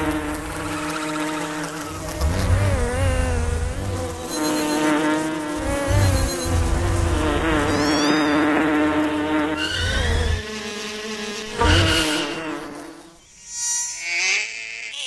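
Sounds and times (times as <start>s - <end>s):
insects buzzing: 0.0s - 15.0s.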